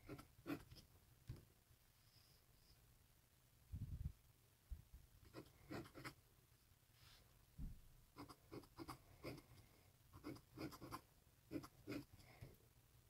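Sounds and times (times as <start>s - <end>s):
pen nib scratching on paper: 0.0s - 0.8s, 5.2s - 6.2s, 8.2s - 12.2s.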